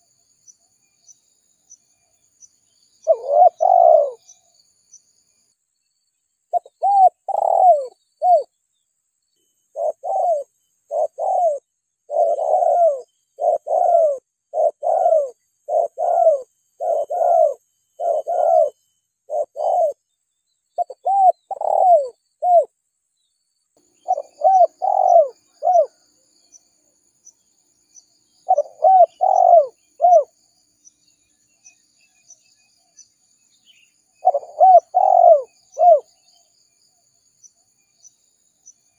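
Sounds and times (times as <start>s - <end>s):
faint high chirping: 0.0s - 38.9s
dove cooing: 3.0s - 4.4s, 6.5s - 8.5s, 9.7s - 20.0s, 20.8s - 22.7s, 24.0s - 26.0s, 28.4s - 30.3s, 34.2s - 36.1s.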